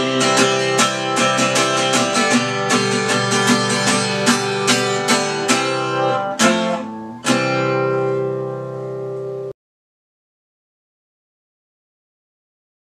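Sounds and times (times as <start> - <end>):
acoustic guitar strumming: 0.0 - 9.6.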